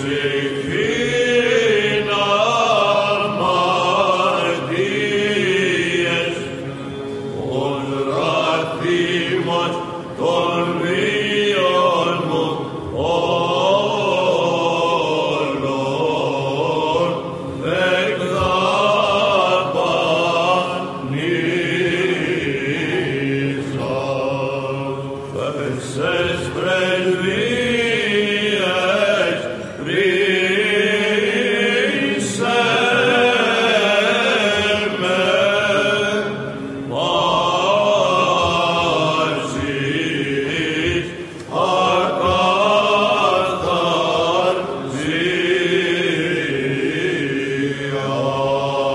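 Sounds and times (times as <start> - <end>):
held vocal drone: 0.0 - 48.9
voices chanting a melody: 0.0 - 48.9.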